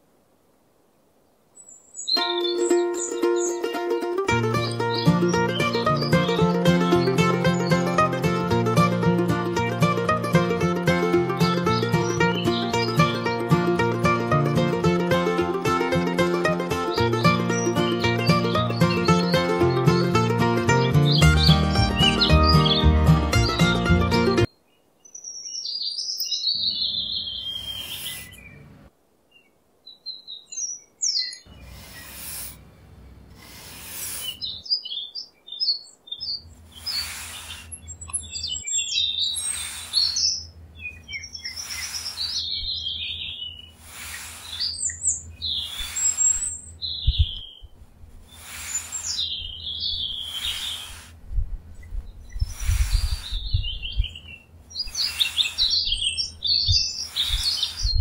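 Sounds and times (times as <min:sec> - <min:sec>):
birds chirping: 0:01.6 - 0:58.0
trowel scraping damp sand: 0:31.6 - 0:32.6, 0:33.4 - 0:34.4, 0:36.8 - 0:37.8, 0:39.4 - 0:40.3, 0:41.5 - 0:42.5, 0:43.8 - 0:44.9, 0:45.6 - 0:46.6, 0:48.3 - 0:49.3, 0:50.2 - 0:51.2, 0:52.5 - 0:53.4, 0:54.9 - 0:56.2, 0:56.9 - 0:58.0.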